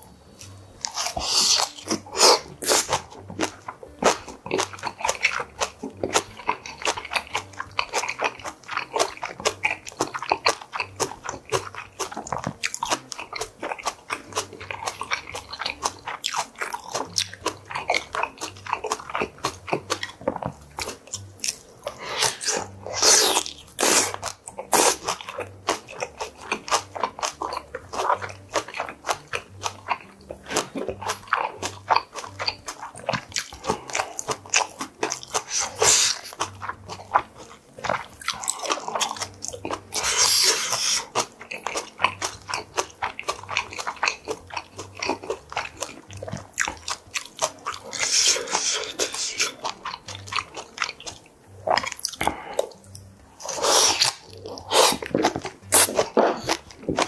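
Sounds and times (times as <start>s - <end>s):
chewing and crunching food: 0.0s - 57.0s
wet mouth clicks: 30.5s - 36.4s, 37.8s - 41.9s, 46.2s - 57.0s.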